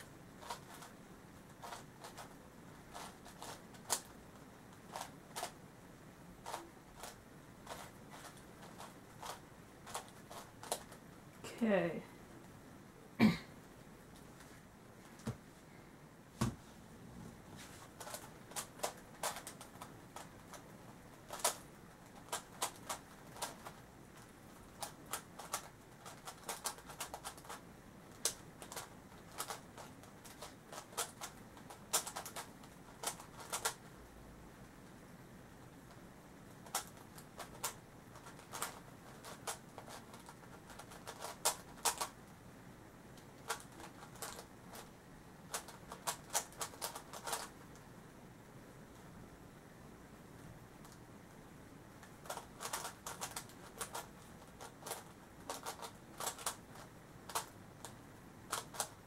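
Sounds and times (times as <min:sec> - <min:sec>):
plastic puzzle clicking: 0:21.3 - 0:23.8, 0:24.7 - 0:33.8, 0:36.6 - 0:42.1, 0:43.4 - 0:44.9, 0:45.5 - 0:47.5, 0:52.0 - 0:59.0.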